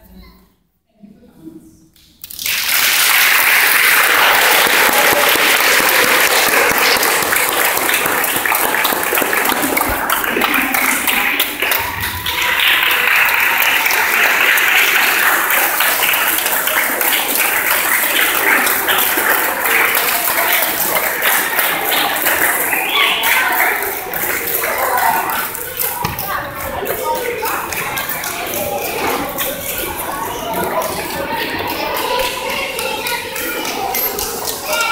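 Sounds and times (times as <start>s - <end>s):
audience applauding: 2.2s - 34.9s
voices talking: 9.5s - 34.9s.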